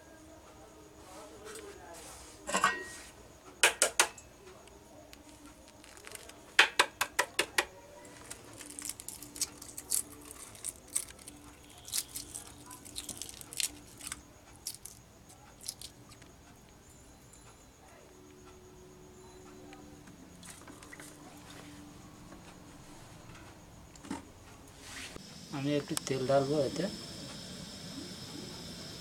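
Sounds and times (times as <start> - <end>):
egg shell crackling: 5.1 - 6.8, 8.1 - 16.3.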